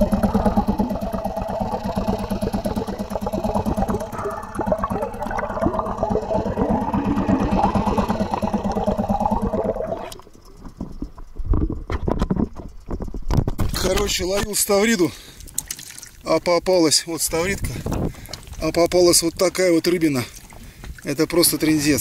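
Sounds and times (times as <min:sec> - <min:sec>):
propeller churning: 0:00.0 - 0:11.2
water slapping and sloshing: 0:00.0 - 0:14.1, 0:15.2 - 0:16.4
muffled outboard engine underwater: 0:00.0 - 0:19.7.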